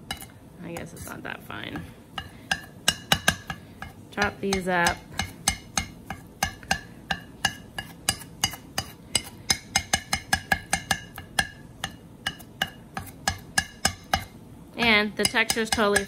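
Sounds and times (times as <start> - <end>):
knife chopping on stone board: 1.8 - 16.0.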